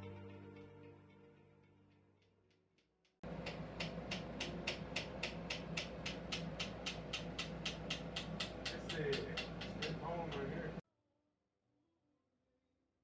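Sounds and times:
background music: 0.0s - 2.5s
tattoo comb tapping skin: 3.4s - 10.5s.

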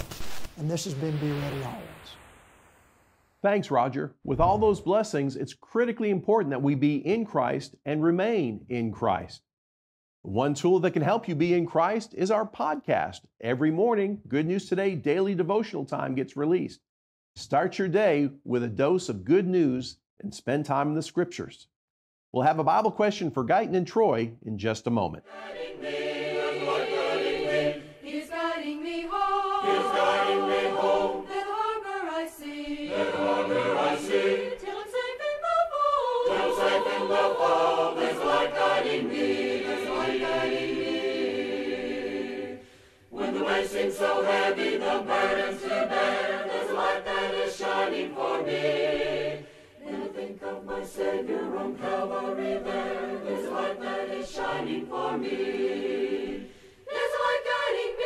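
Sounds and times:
choir singing a cappella: 25.2s - 58.0s.

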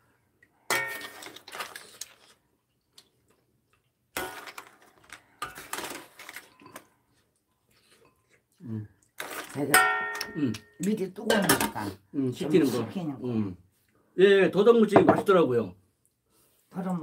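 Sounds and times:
person slurping and chewing: 1.0s - 3.4s.

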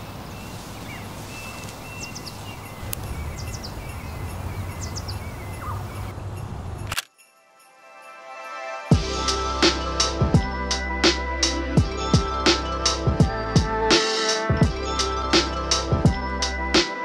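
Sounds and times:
bird chirps: 0.0s - 6.3s.

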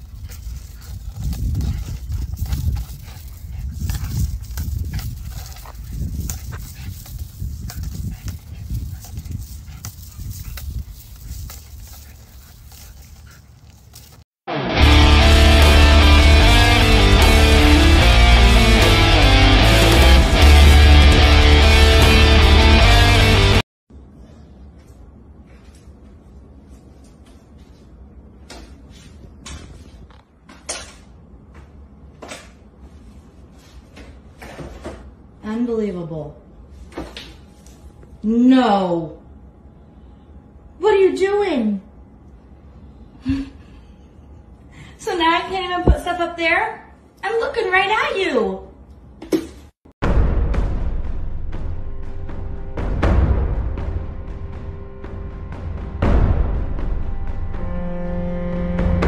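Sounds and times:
steady low rumble: 0.0s - 14.2s
dog's feet on ground: 0.0s - 14.3s.

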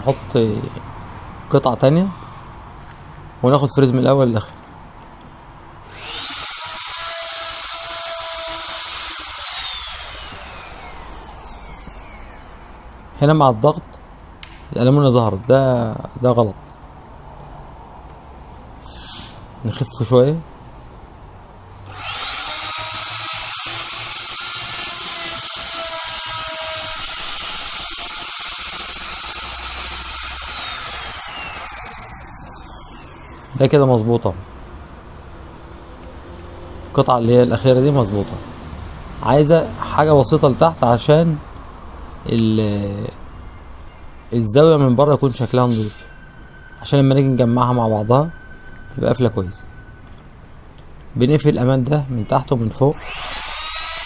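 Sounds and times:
electric router whining: 5.9s - 13.0s, 21.9s - 33.7s, 53.0s - 54.0s
router bit cutting panel: 5.9s - 13.0s, 21.9s - 33.6s, 53.0s - 54.0s.

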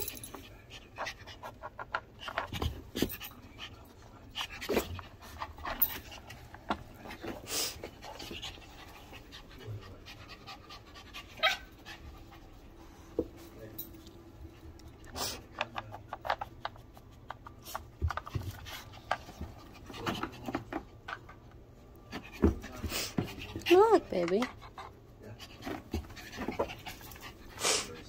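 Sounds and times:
dog panting: 0.0s - 13.7s, 22.0s - 28.0s.

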